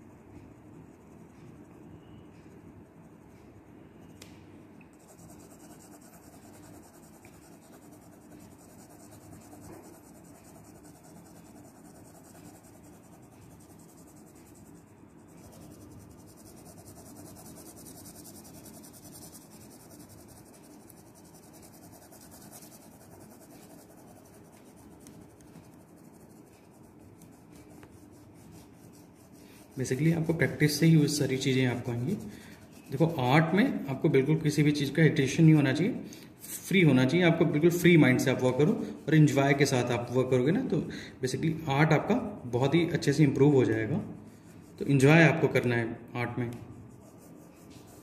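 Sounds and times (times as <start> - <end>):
pencil scratching on paper: 5.0 - 33.8, 42.6 - 45.7, 46.4 - 48.0.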